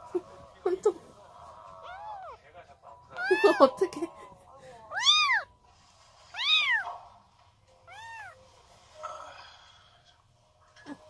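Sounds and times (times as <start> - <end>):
kitten mewing: 1.7 - 2.4, 3.2 - 3.8, 4.9 - 5.5, 6.4 - 6.9, 7.9 - 8.4.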